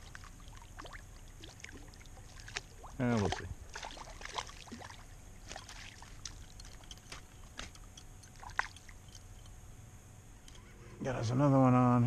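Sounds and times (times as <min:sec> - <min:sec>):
water sloshing and splashing: 0:00.0 - 0:09.5.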